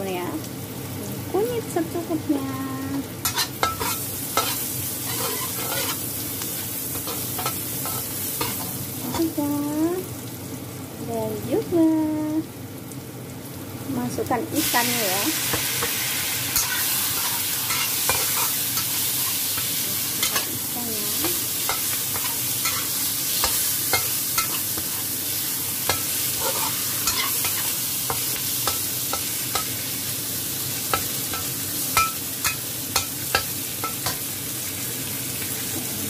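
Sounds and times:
fish sizzling in hot oil: 0.0s - 36.0s
metal spatula scraping and tapping pan: 3.2s - 6.0s, 16.6s - 18.9s, 21.2s - 25.0s, 25.9s - 29.7s.

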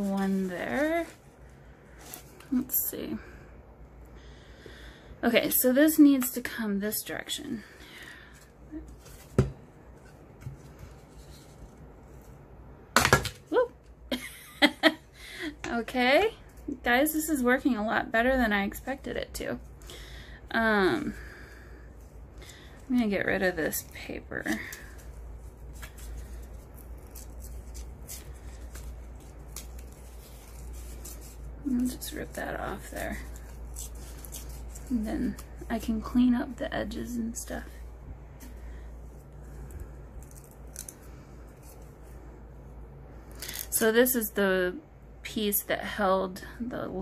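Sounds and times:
steady low hum: 0.0s - 47.0s
paper peeling crackles: 22.4s - 36.2s.

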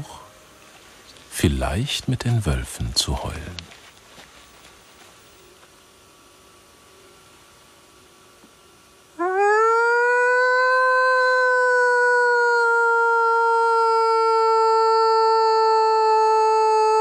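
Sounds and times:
long rising howl: 9.2s - 17.0s.

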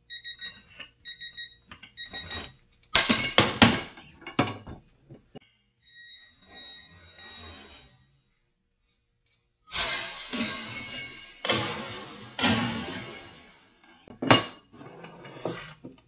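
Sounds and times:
torque meter beeps: 0.0s - 2.6s, 5.8s - 7.7s
ratchet cracking with metal clatter: 9.7s - 14.0s.

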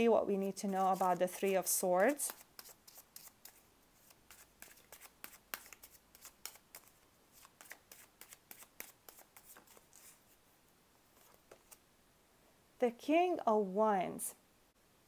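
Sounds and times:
cards being shuffled: 0.6s - 10.3s, 11.2s - 11.8s.

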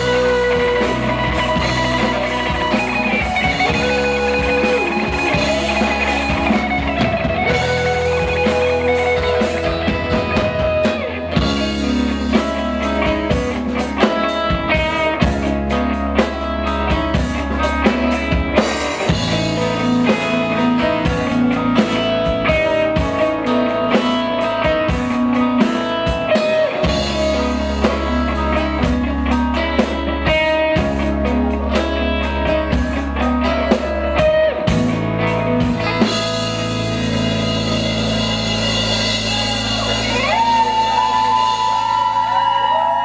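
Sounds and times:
drum kit beat: 0.0s - 43.0s
electric and acoustic guitars: 0.0s - 43.0s.

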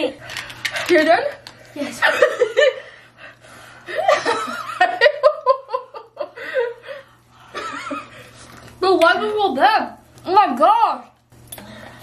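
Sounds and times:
woman laughing: 1.8s - 3.0s, 3.9s - 8.2s.

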